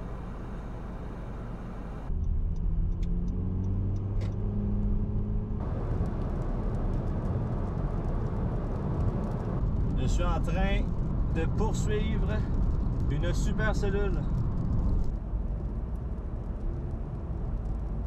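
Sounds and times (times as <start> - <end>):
car engine hum: 0.0 - 13.1
road and tyre noise: 0.0 - 18.0.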